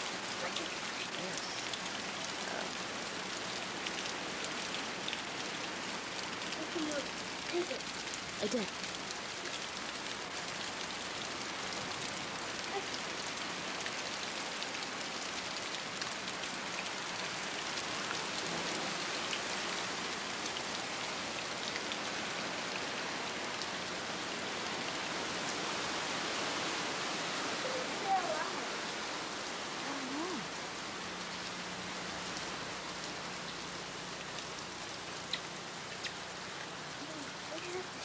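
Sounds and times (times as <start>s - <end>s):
steady rain falling: 0.0s - 38.0s.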